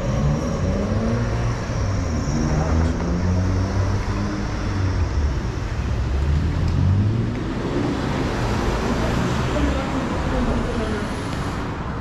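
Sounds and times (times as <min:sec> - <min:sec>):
road vehicles passing: 0:00.0 - 0:12.0.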